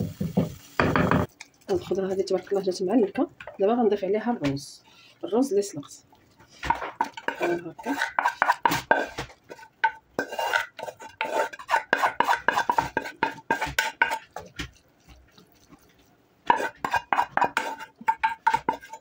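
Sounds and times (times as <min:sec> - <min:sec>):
wooden spoon scraping metal pot: 0:06.4 - 0:19.0.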